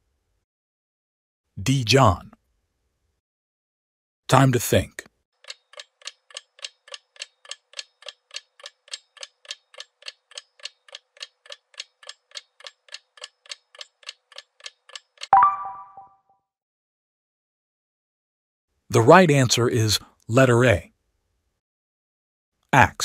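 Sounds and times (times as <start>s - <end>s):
clock ticking: 5.4s - 15.3s
short chime: 15.4s - 16.2s.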